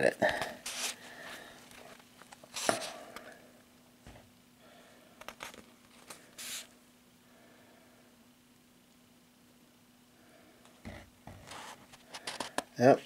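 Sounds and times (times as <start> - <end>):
faint steady hum: 0.0 - 13.0
paper pages rustling: 5.2 - 6.7.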